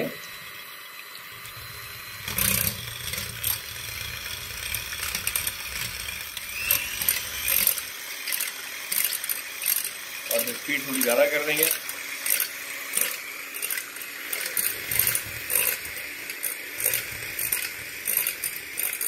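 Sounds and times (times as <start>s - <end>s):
electric mixer motor humming: 0.0s - 19.0s
beaters clicking and scraping bowl: 1.3s - 19.0s.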